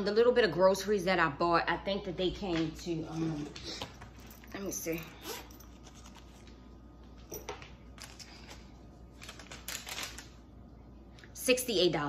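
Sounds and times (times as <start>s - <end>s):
paper receipt rustling: 5.6s - 6.7s, 7.9s - 10.4s.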